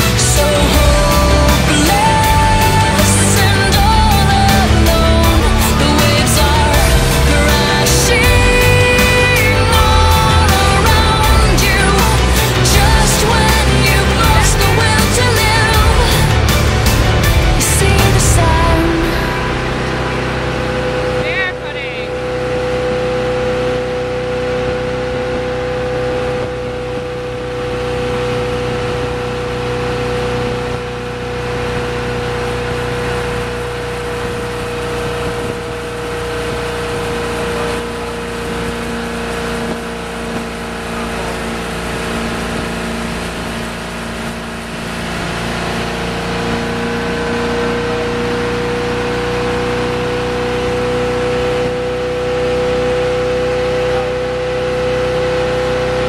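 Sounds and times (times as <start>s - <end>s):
boat engine running: 0.0s - 56.0s
wind: 19.9s - 56.0s.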